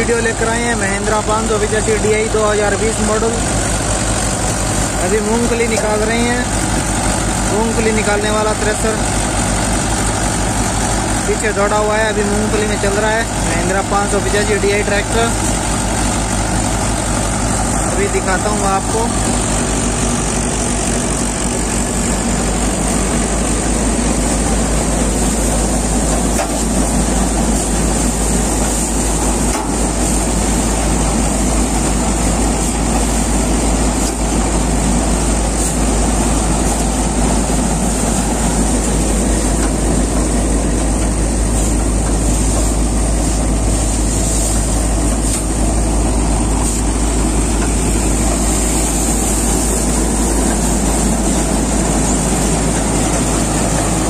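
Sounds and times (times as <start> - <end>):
thresher machinery rumble: 0.0 - 54.0
tractor engine rumbling: 0.0 - 54.0.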